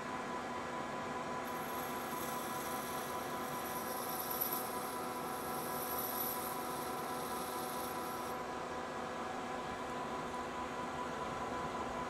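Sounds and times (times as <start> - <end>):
metal lathe humming: 1.5 - 8.4.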